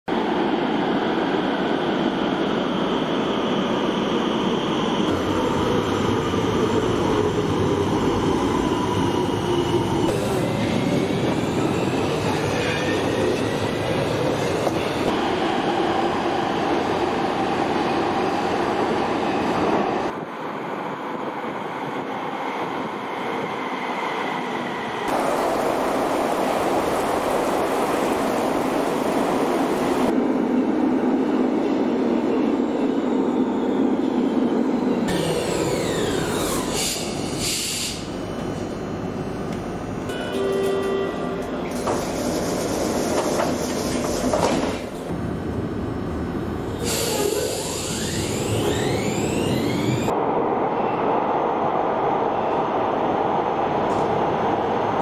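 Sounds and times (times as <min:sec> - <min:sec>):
wheel and rail squeal: 0:46.7 - 0:50.1.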